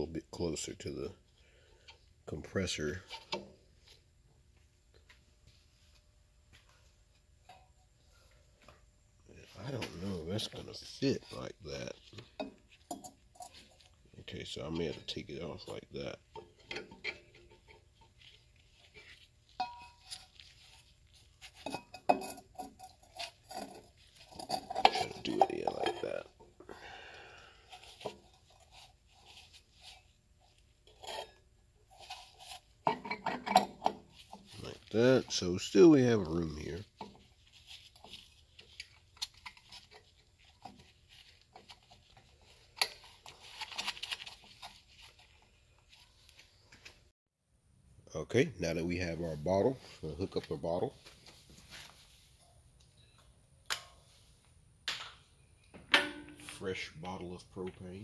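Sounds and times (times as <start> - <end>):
hand rustling on metal housing: 6.7 - 26.6
sheet metal cover clinking and knocking: 55.8 - 56.5.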